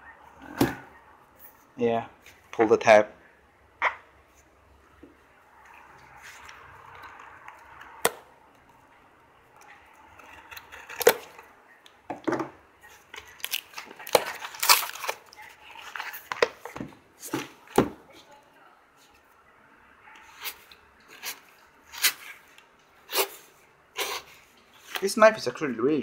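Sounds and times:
cardboard envelope tearing open: 0:13.2 - 0:16.3.

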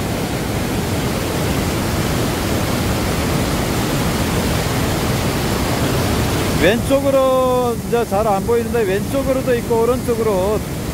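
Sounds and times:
waterfall and rapids rushing: 0:00.0 - 0:10.9.

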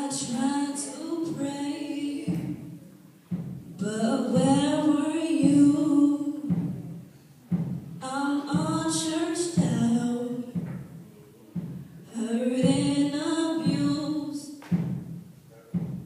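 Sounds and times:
women singing into microphones: 0:00.0 - 0:02.8, 0:03.8 - 0:06.8, 0:08.0 - 0:10.7, 0:12.1 - 0:14.6.

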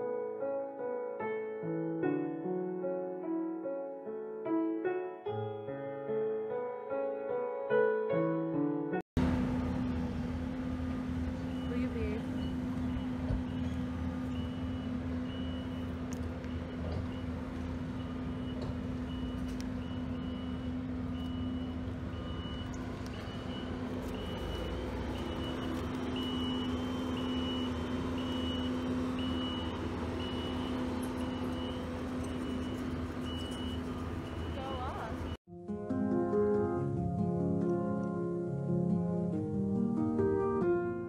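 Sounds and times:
low engine hum: 0:09.2 - 0:35.4
vehicle reversing alarm beeping: 0:10.5 - 0:35.4.

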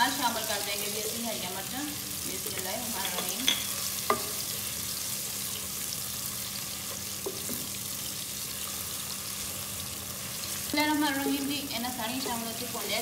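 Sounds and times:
vegetables sizzling in a pot: 0:00.0 - 0:13.0
spoon knocking against pot: 0:03.0 - 0:04.4.

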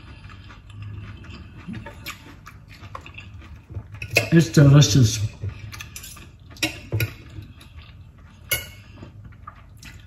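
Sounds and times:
cutlery clinking on a plate: 0:05.6 - 0:09.2.

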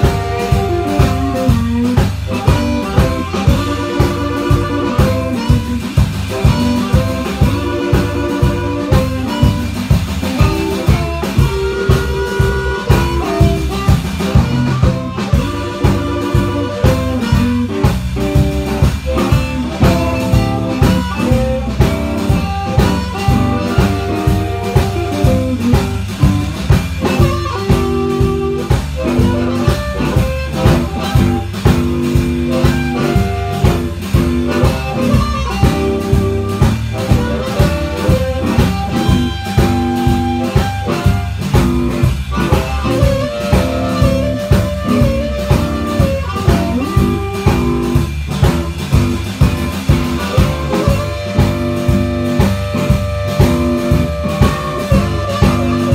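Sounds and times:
harmonica melody: 0:00.0 - 0:48.2, 0:49.0 - 0:55.9
drum kit beat: 0:00.0 - 0:55.9
electric guitar: 0:00.0 - 0:55.9.

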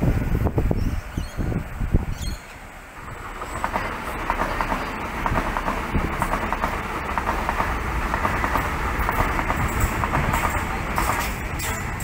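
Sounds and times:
electric train wheels on rail: 0:00.0 - 0:12.0.

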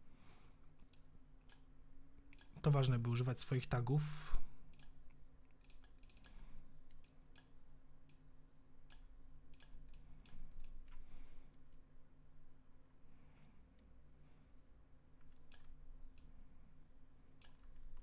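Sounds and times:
faint low hum: 0:00.0 - 0:18.0
computer mouse clicks: 0:00.8 - 0:01.7, 0:02.3 - 0:02.6, 0:04.7 - 0:08.2, 0:08.8 - 0:11.0, 0:15.2 - 0:16.4, 0:17.4 - 0:18.0.

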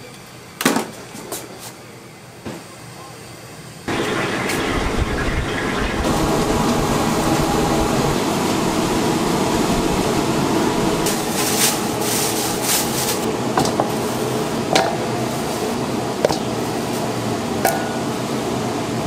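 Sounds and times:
bursts of hissing: 0:03.9 - 0:13.3
steady rushing frying noise: 0:03.9 - 0:19.0.

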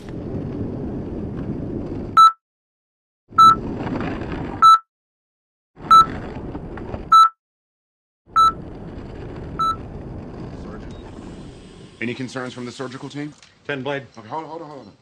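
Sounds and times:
skateboard wheels rolling on asphalt: 0:00.0 - 0:02.2, 0:03.3 - 0:04.7, 0:05.8 - 0:07.2, 0:08.3 - 0:13.8
short electronic beeps: 0:02.2 - 0:02.4, 0:03.4 - 0:03.6, 0:04.6 - 0:04.8, 0:07.1 - 0:07.4, 0:08.4 - 0:08.6, 0:09.6 - 0:09.8.

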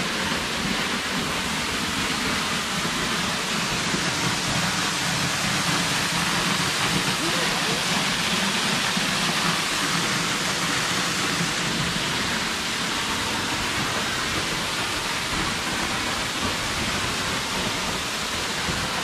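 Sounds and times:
waterfall rushing onto rocks: 0:00.0 - 0:19.0.

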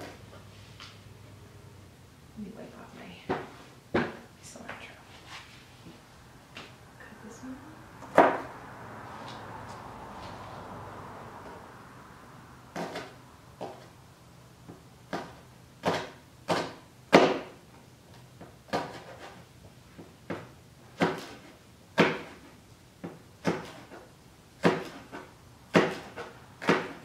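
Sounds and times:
knife chopping on cutting board: 0:08.0 - 0:08.5, 0:12.7 - 0:13.8, 0:14.7 - 0:17.6, 0:18.6 - 0:19.4, 0:20.2 - 0:27.0.

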